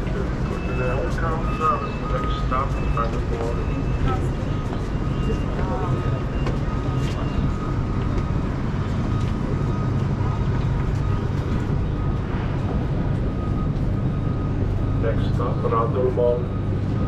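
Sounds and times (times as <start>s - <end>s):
electric tram humming: 0.0s - 17.0s
high-pitched whine: 0.0s - 17.0s.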